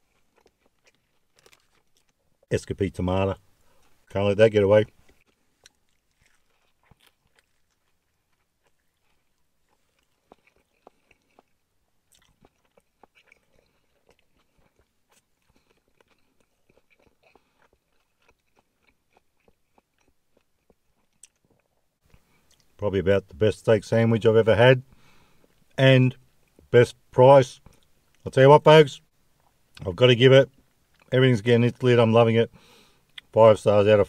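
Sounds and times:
person chewing food: 0.0s - 2.5s, 3.6s - 4.1s, 5.0s - 22.8s.

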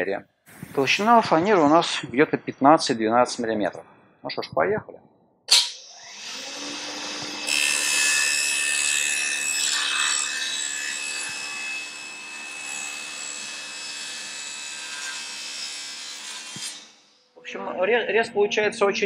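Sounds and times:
table saw cutting plywood: 5.5s - 17.0s.

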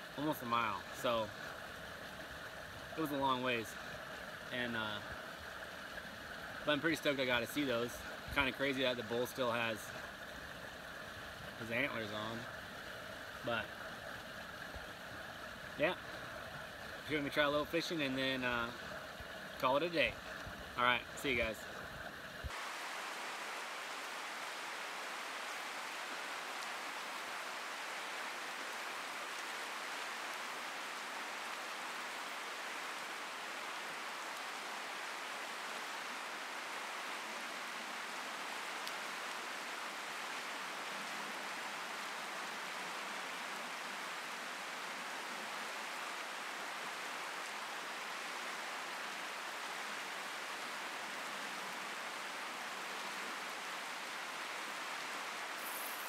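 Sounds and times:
river rushing over riffles: 0.0s - 14.4s, 22.4s - 56.0s.

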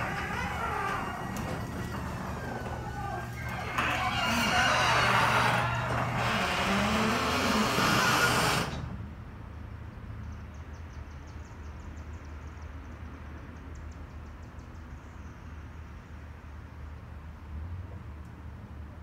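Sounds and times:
garage door squealing and rattling: 0.0s - 9.0s.

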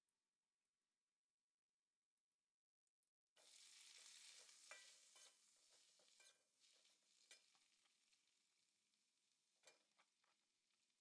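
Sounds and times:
greens sizzling in a hot wok: 3.4s - 10.0s
metal spatula scraping a wok: 4.0s - 7.6s.

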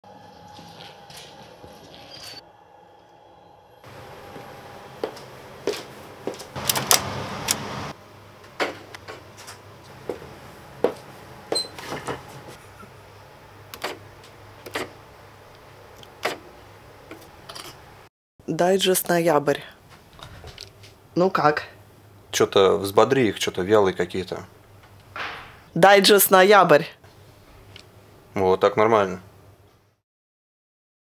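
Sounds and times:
steady low hum: 2.5s - 18.0s
door handle and door: 6.6s - 7.6s.

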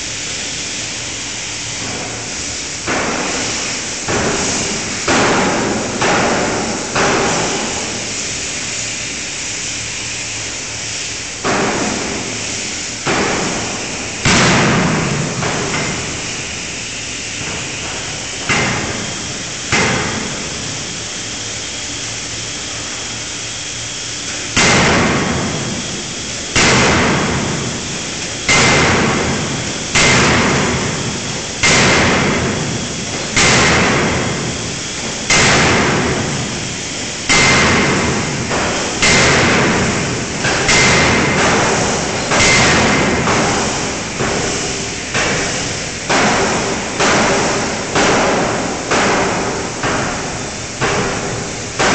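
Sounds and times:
steady background noise: 0.0s - 51.9s
forging hammer striking steel: 26.6s - 51.9s.

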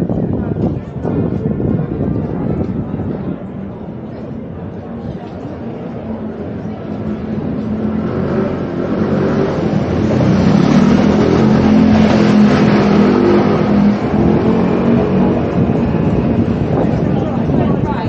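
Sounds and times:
vehicle engine passing by: 6.5s - 17.8s.

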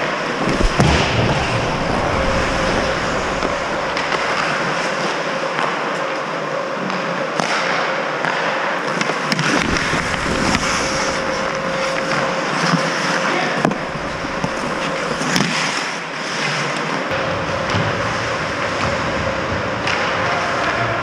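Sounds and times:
skates scraping on ice: 0.3s - 4.9s, 9.2s - 13.0s, 13.6s - 16.8s
faint steady hum: 0.4s - 4.9s, 9.5s - 15.5s.

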